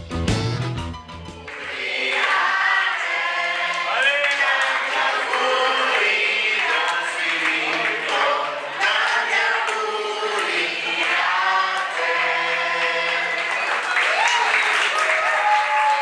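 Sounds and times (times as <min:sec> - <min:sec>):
choir singing held notes: 0:01.5 - 0:13.9.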